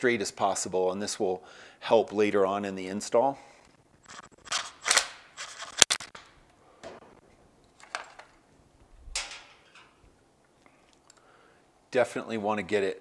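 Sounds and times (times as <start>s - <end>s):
wiring rustling and scraping: 3.6s - 11.2s.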